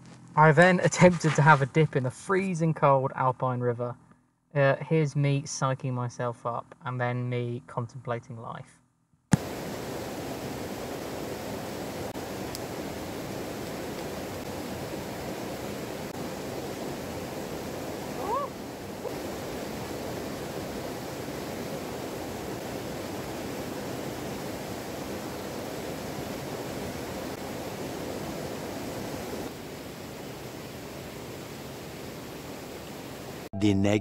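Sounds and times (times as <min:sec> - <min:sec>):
waterfall rushing: 0:09.4 - 0:33.5
high rising cry: 0:18.0 - 0:19.2.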